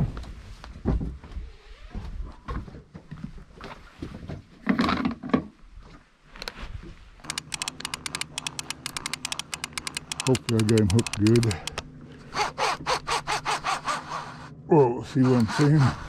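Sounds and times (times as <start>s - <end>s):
fishing reel clicking: 7.2s - 11.8s, 15.2s - 15.9s.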